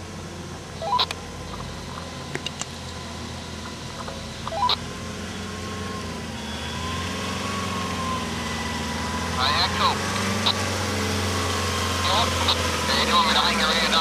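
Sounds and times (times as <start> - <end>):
engine running at low revs: 0.0 - 14.0.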